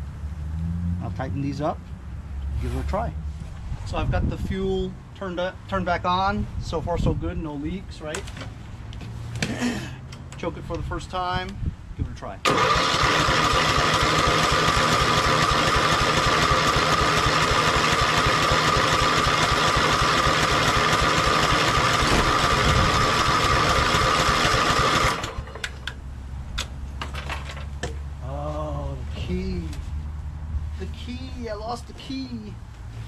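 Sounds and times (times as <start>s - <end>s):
electric starter cranking engine: 12.5s - 25.9s.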